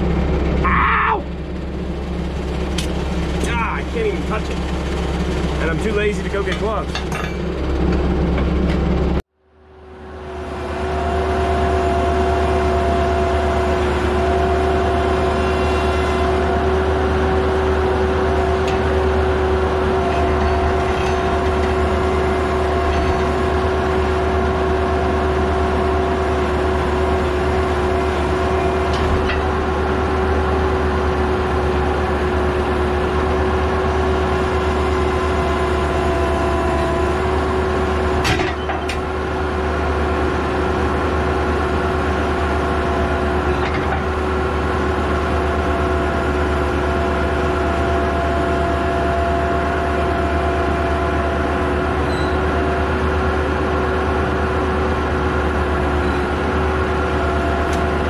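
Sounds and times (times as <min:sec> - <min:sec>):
heavy machine engine running: 0:00.0 - 0:58.0
metallic clank: 0:06.5 - 0:08.6.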